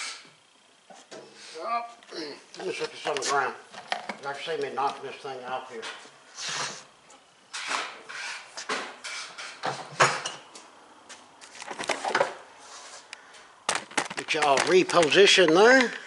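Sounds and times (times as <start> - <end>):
plastic knocks and rattles: 13.7 - 15.9.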